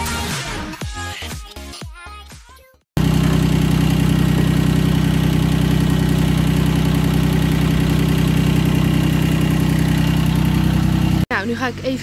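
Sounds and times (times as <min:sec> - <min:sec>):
tractor diesel engine idling: 0:03.0 - 0:12.0.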